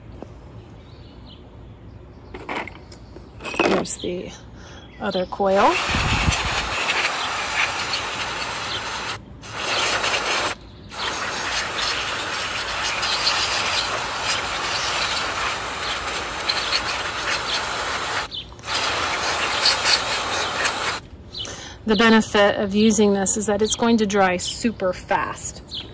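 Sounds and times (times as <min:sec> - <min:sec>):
aerosol can hissing: 0:05.6 - 0:21.0.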